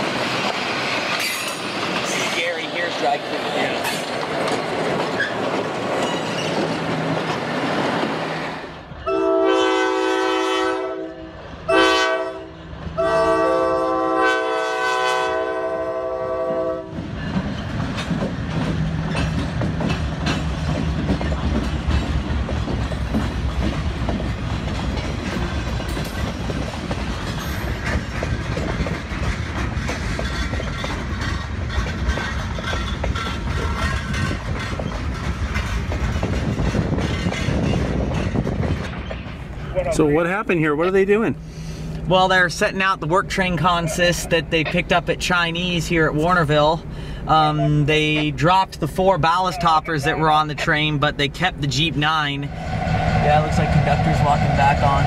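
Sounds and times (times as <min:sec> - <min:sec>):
wheels clacking over rail joints: 0:00.0 - 0:08.8, 0:16.6 - 0:41.3
train rumbling past: 0:00.0 - 0:55.0
locomotive air horn: 0:09.0 - 0:17.0.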